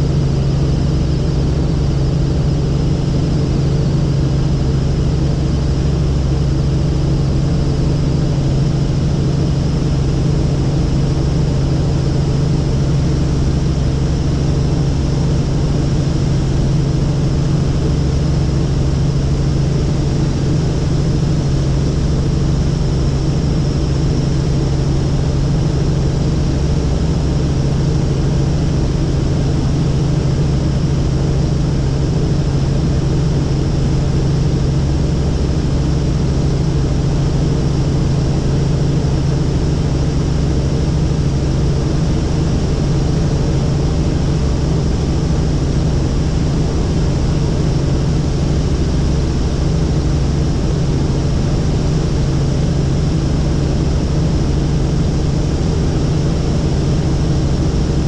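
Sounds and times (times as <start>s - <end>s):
helicopter engine and rotor drone: 0.0s - 58.0s.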